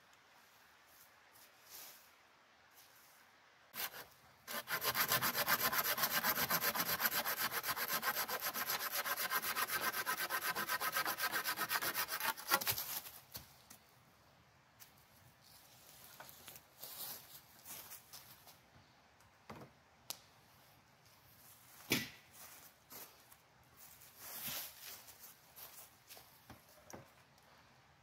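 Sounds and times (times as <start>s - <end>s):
hand saw cutting wood: 3.8s - 12.8s.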